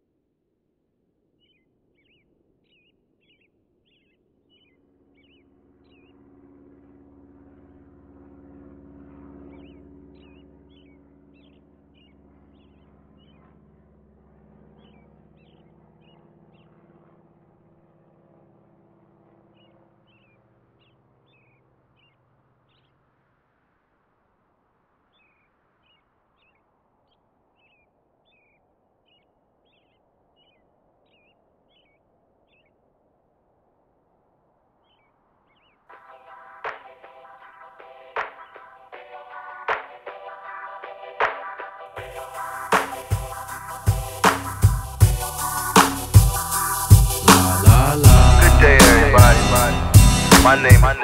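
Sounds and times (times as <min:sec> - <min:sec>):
birds chirping: 0:01.4 - 0:06.2, 0:09.4 - 0:13.5, 0:14.7 - 0:16.8.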